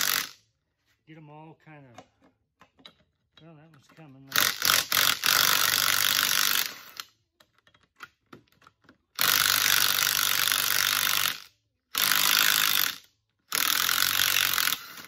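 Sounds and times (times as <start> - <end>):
impact driver hammering on nuts: 4.3 - 7.0.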